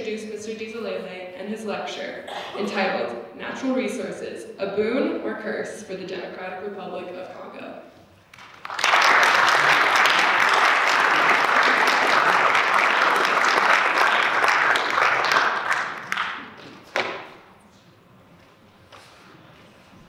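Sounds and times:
audience applauding: 8.3 - 16.8.

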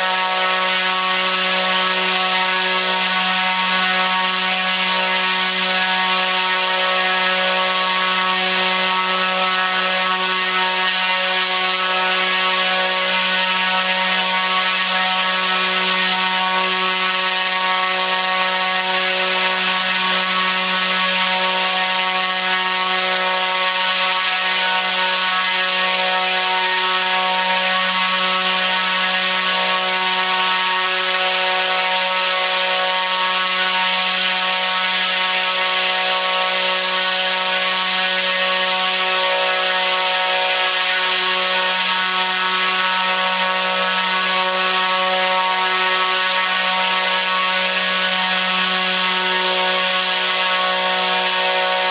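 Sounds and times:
electric motor propeller buzz: 0.0 - 51.9.

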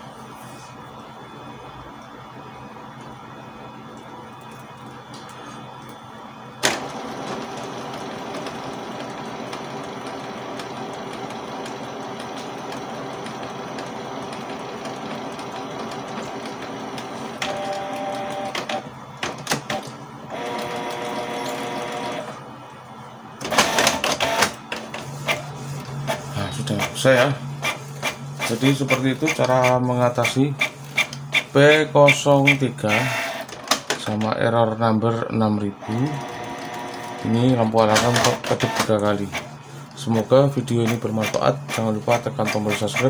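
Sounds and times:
printer motor whirring: 0.0 - 34.3, 35.7 - 43.0
printer clattering: 6.6 - 22.4, 23.4 - 34.4, 35.8 - 43.0
printer clicks: 23.4 - 25.4, 27.6 - 34.4, 36.0 - 39.4.

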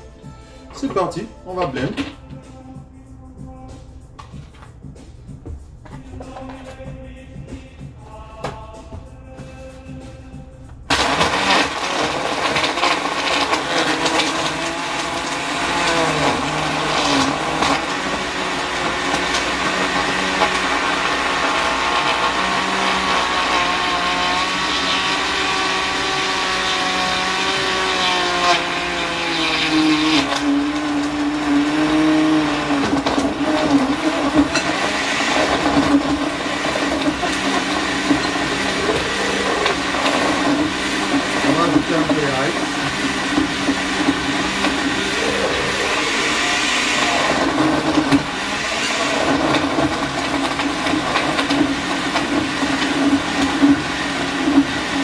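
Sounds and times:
blender crushing ice: 0.8 - 2.2, 10.9 - 55.0.

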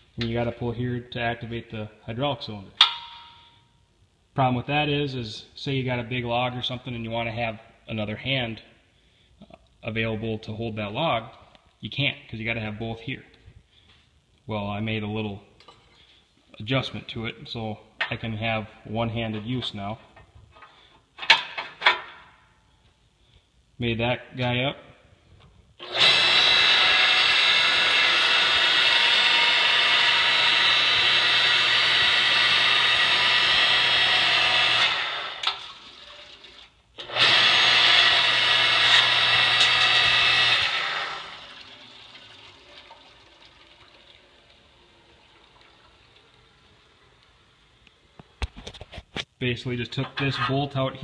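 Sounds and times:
log splitter whirring: 25.8 - 42.7.

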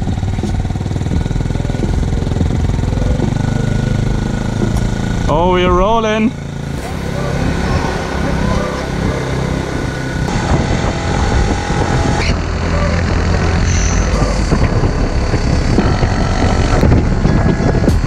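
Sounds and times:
motorbike engine running: 0.0 - 18.0
rattling: 0.0 - 18.0
wind on camera: 0.0 - 18.0.

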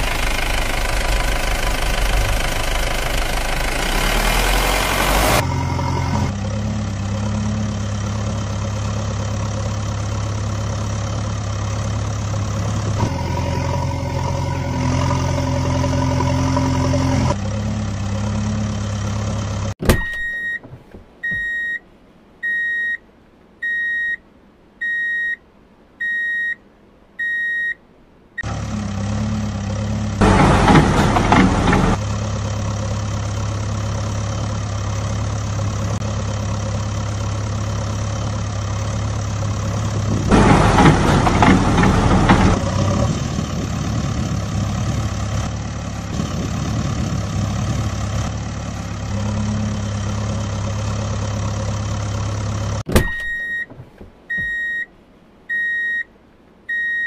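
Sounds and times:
diesel engine hum: 0.0 - 26.0, 26.6 - 57.0
reversing beeps: 20.0 - 21.8, 22.4 - 23.0, 23.6 - 24.2, 24.8 - 25.4, 26.0 - 26.6, 27.2 - 27.8, 53.0 - 53.7, 54.3 - 54.9, 55.5 - 56.1, 56.7 - 57.0.

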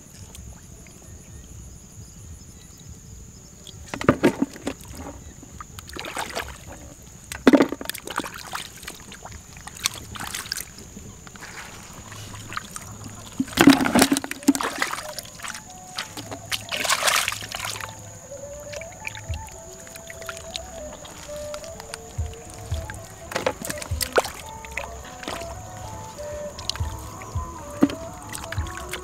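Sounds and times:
fish dropped into water bucket: 3.9 - 5.2, 5.9 - 8.6, 11.3 - 17.9, 22.7 - 25.6
hands splashing in muddy water: 5.8 - 6.8, 7.4 - 29.0.

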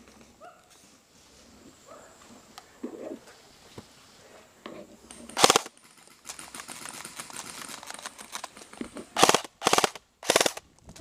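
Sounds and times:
rapid rattle of airsoft guns: 5.1 - 11.0
airsoft rifle full-auto burst: 5.4 - 5.7, 9.2 - 10.6.

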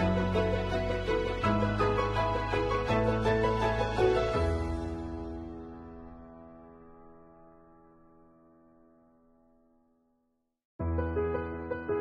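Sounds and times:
background music: 0.0 - 7.2.

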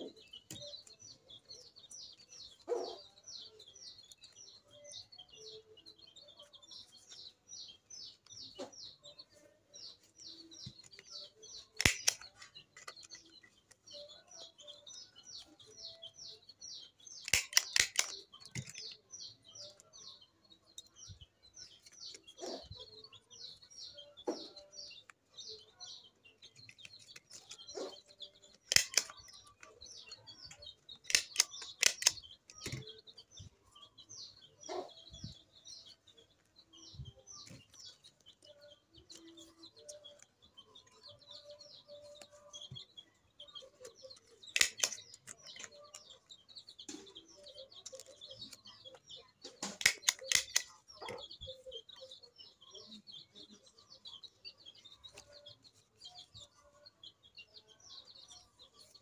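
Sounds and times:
small bird chirping: 0.0 - 59.0
hand stapler clicks: 11.8 - 13.1, 17.2 - 19.0, 28.6 - 29.3, 31.0 - 32.9, 44.4 - 45.7, 49.6 - 50.7.

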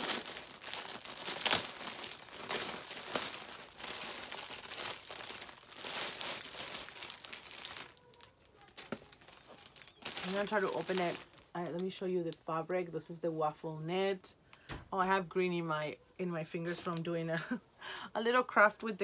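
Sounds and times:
packaging crinkling and rustling: 0.0 - 12.4
sharp crackle of packaging: 0.0 - 12.4.

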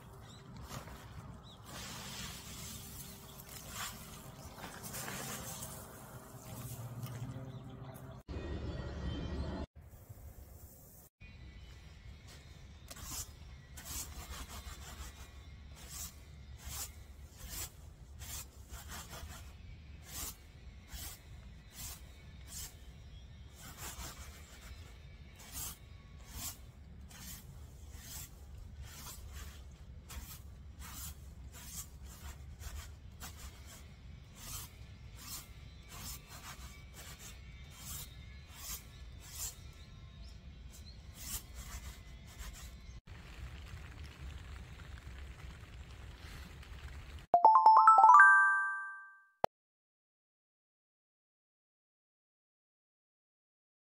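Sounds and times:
seeds rustling in winnowing basket: 0.6 - 6.9.

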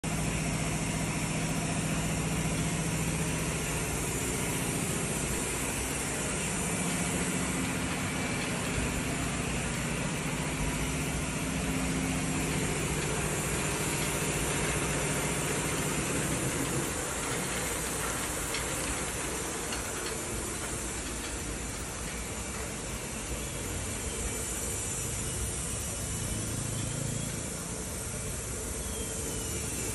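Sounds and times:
continuous hiss: 0.0 - 29.9
conveyor belt rattle: 0.0 - 29.9
conveyor motor hum: 0.0 - 29.9.

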